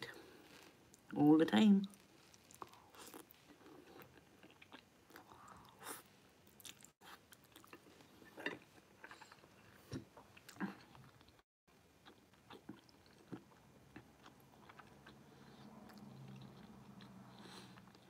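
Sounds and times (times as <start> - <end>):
person chewing food: 1.9 - 11.4, 12.0 - 18.0.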